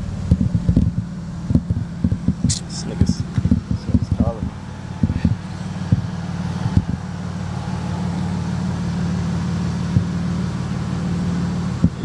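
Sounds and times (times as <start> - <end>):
car engine running: 0.0 - 12.0
short knocks: 0.3 - 7.0.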